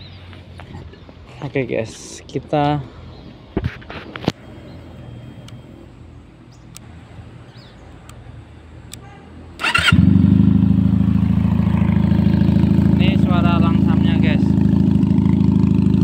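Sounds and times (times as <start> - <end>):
motorcycle engine starting and idling: 9.6 - 16.0.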